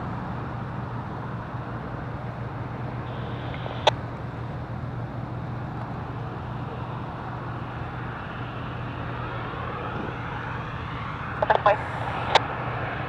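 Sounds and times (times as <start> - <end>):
vehicle engine idling: 0.0 - 9.6
faint rising whine: 0.0 - 13.0.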